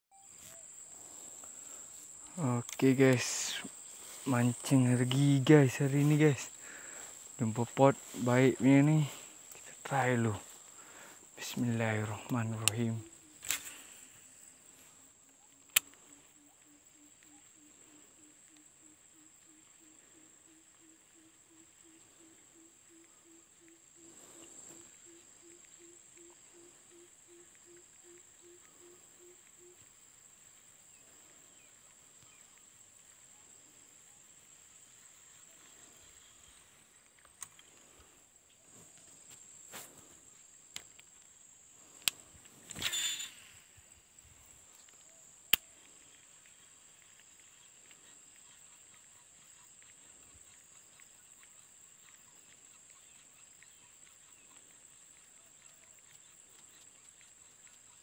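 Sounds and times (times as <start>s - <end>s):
insects droning: 0.1s - 58.0s
sharp clicks: 11.9s - 13.9s, 15.6s - 16.1s, 36.5s - 37.8s, 41.8s - 43.6s.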